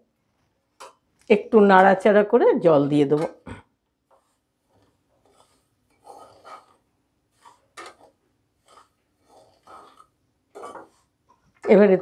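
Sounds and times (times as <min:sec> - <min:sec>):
spatula scraping dry semolina: 0:04.0 - 0:12.0.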